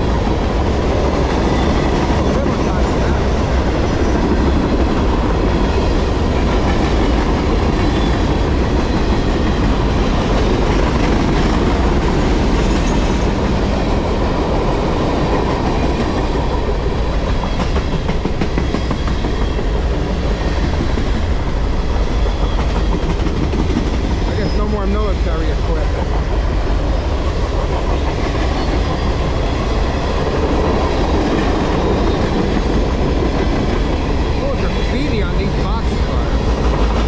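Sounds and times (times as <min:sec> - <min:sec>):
freight train rumbling past: 0:00.0 - 0:37.0
steel wheels clattering on rails: 0:00.0 - 0:37.0.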